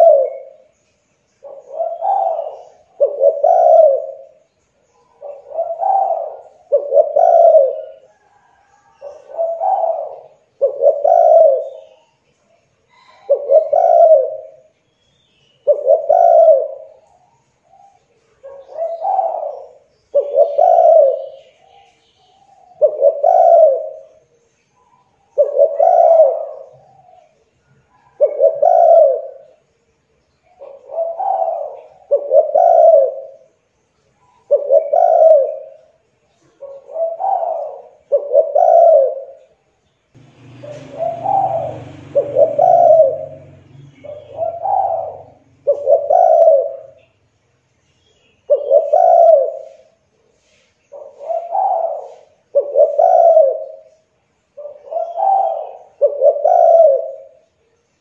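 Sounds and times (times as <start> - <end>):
dove cooing: 0.0 - 0.7, 1.4 - 12.2, 12.9 - 14.8, 15.6 - 24.3, 24.9 - 29.6, 30.5 - 33.6, 34.3 - 39.6, 40.2 - 47.1, 48.4 - 57.6
low rumbling noise: 40.2 - 45.8.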